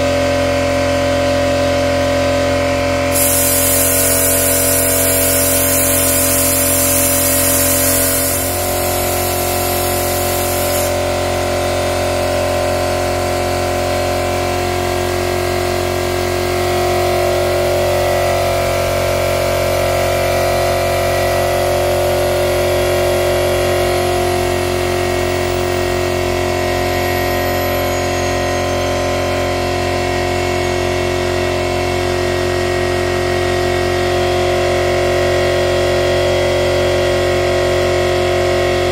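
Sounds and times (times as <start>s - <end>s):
high air hiss: 3.1s - 11.1s
machine humming: 3.1s - 11.7s.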